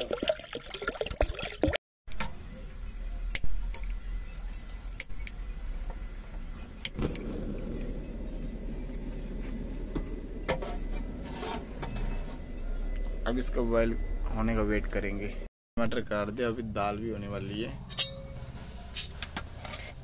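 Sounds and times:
water pouring into pot: 0:00.0 - 0:01.8
low hum: 0:02.2 - 0:15.5.

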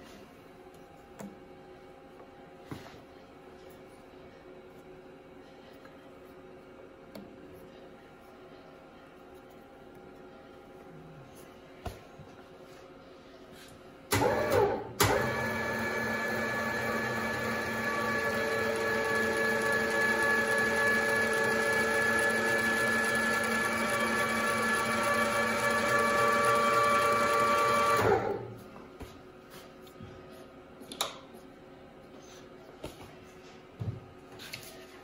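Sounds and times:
grinder motor humming and whining: 0:15.0 - 0:28.5.

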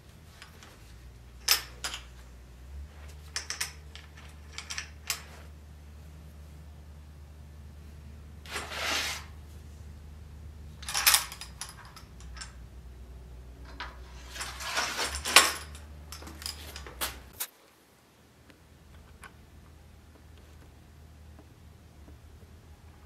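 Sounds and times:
metal sword clinking and scraping: 0:08.5 - 0:09.3, 0:13.8 - 0:17.3.

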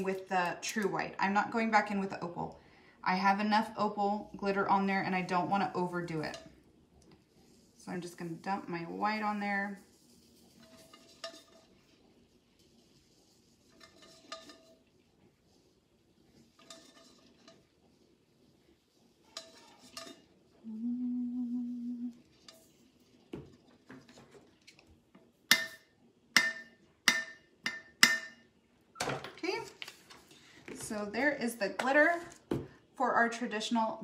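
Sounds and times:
steady low hum: 0:20.5 - 0:22.9.

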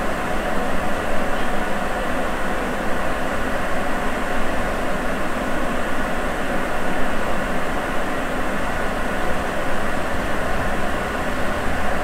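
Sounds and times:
subway train running in tunnel: 0:00.0 - 0:12.0.

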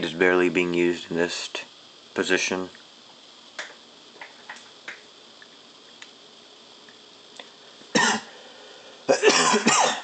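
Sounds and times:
person coughing: 0:08.0 - 0:08.3, 0:09.1 - 0:10.0.

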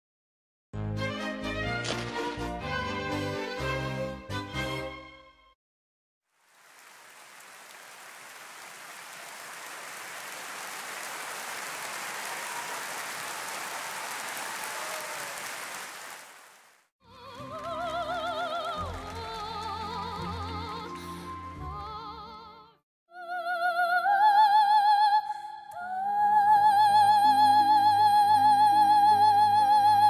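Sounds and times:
audience applauding: 0:06.4 - 0:21.0
soprano singing operatically: 0:17.1 - 0:30.0.

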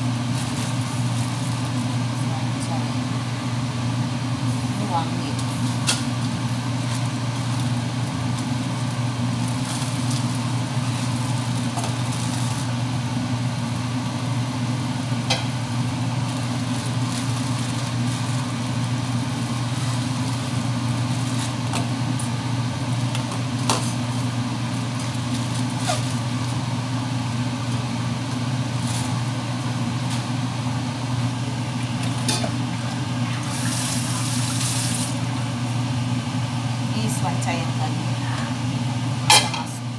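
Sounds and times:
low machine hum: 0:00.0 - 0:39.9
plastic bag crinkling: 0:08.4 - 0:12.7, 0:16.2 - 0:21.6.

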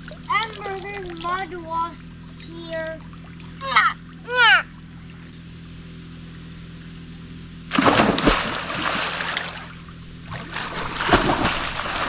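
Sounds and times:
water churning: 0:00.0 - 0:04.8, 0:07.7 - 0:12.0
splash into water: 0:07.7 - 0:12.0.

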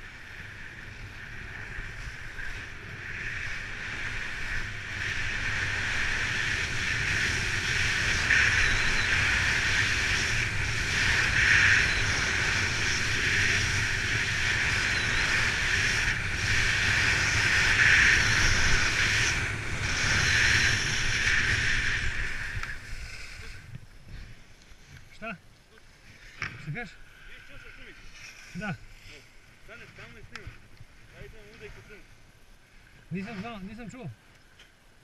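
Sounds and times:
wind on microphone: 0:00.0 - 0:25.1
skis scraping over snow: 0:00.0 - 0:32.2, 0:33.1 - 0:34.1.

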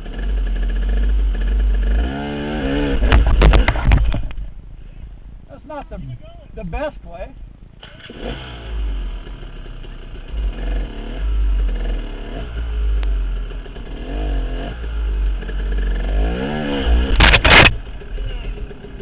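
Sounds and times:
dirt bike engine revving: 0:00.0 - 0:03.9, 0:07.8 - 0:19.0
bike banging and scraping on rocks: 0:03.0 - 0:04.4, 0:17.0 - 0:17.8.

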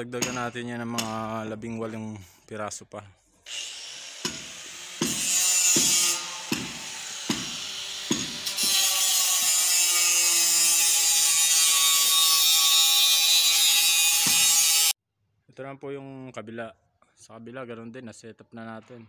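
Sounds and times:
power tool whirring on steel: 0:03.5 - 0:15.0.

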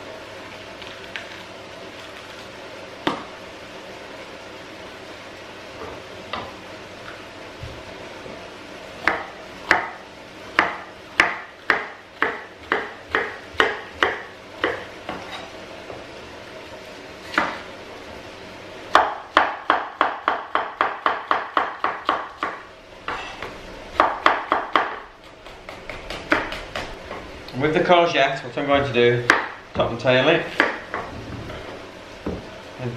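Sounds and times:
knife chopping on wooden board: 0:09.0 - 0:10.0, 0:10.6 - 0:15.4, 0:17.3 - 0:17.6, 0:18.9 - 0:27.2, 0:29.3 - 0:29.6, 0:30.5 - 0:31.1.

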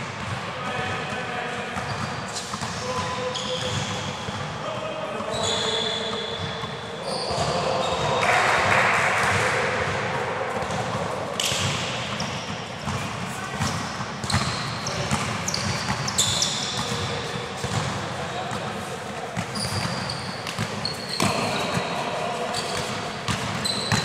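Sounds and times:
sneakers squeaking on court: 0:01.7 - 0:04.6, 0:05.2 - 0:08.1, 0:10.6 - 0:24.0.

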